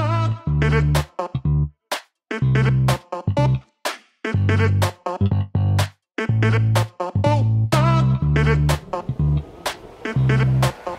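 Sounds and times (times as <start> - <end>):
heavy bass notes: 0.0 - 1.7, 2.4 - 3.6, 4.4 - 9.4, 10.2 - 10.8
pitch-bending lead line: 7.8 - 10.9.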